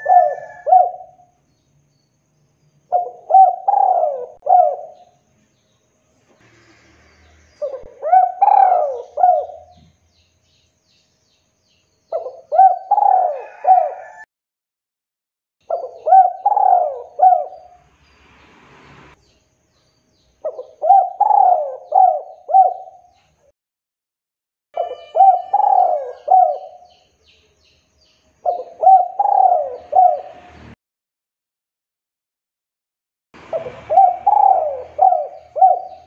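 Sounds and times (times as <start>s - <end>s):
dove cooing: 0.0s - 1.3s, 2.9s - 5.2s, 7.6s - 9.9s, 12.1s - 14.2s, 15.7s - 17.8s, 20.4s - 23.2s, 24.8s - 26.9s, 28.4s - 30.4s, 33.5s - 36.0s.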